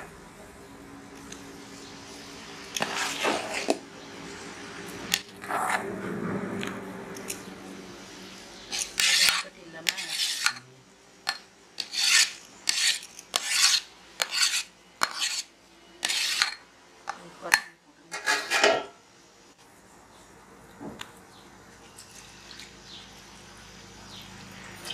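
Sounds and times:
ladle scraping rice in pot: 2.7s - 3.8s, 5.1s - 5.9s, 8.7s - 10.6s, 11.8s - 16.6s.

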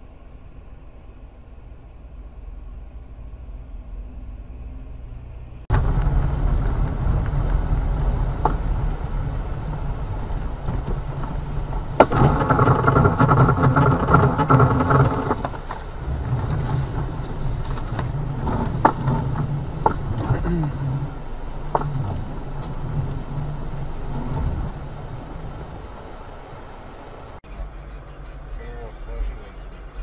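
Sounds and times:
car engine and road noise: 0.0s - 30.0s
steady pitched tone: 26.9s - 30.0s.

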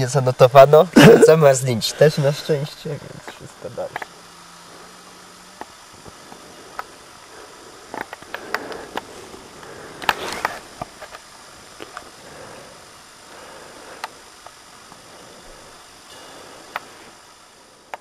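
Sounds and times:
faint low hum: 0.0s - 18.0s
steady hiss: 0.0s - 18.0s.

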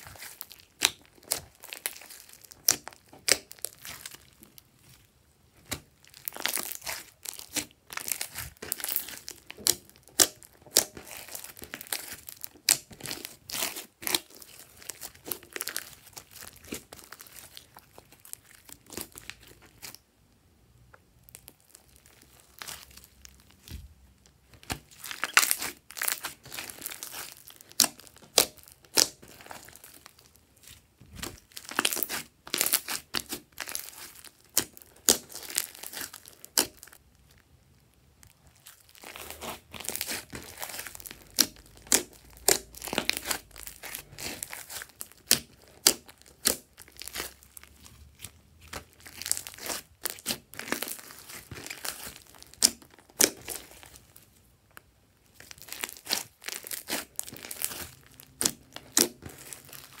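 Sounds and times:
slime squishing with crackles: 0.0s - 60.0s.

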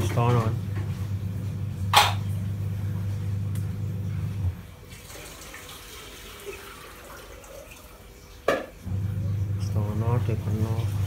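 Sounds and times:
low steady hum: 0.0s - 4.9s, 8.8s - 11.0s
tap water running into sink: 4.9s - 11.0s.

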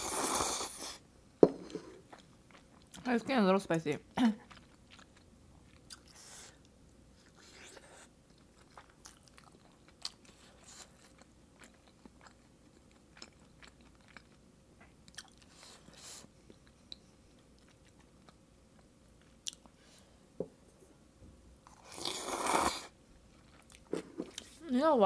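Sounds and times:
loud noodle slurp: 0.0s - 1.0s, 21.8s - 22.9s
chewing food: 2.0s - 3.1s, 4.0s - 19.8s, 23.2s - 24.6s.

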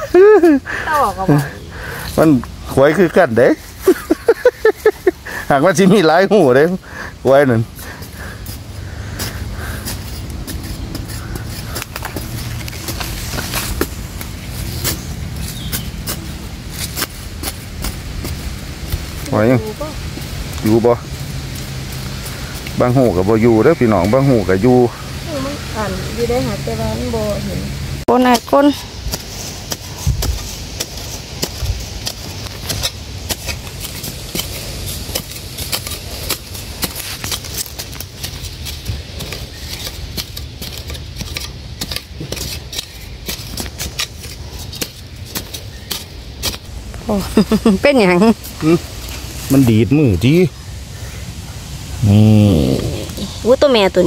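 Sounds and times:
hand spade scraping dry soil: 0.0s - 27.4s, 28.1s - 51.1s
spade chopping into sandy soil: 28.3s - 46.7s.

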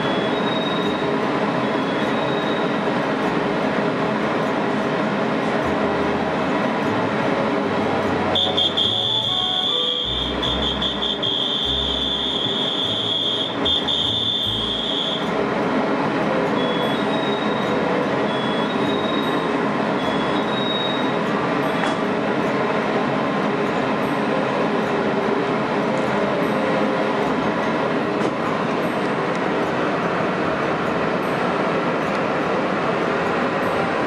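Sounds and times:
high-pitched warning tone: 0.0s - 3.4s, 6.8s - 15.4s, 16.3s - 22.6s
train doors closing: 0.0s - 5.7s, 6.6s - 34.0s
electric train equipment humming: 0.0s - 34.0s.

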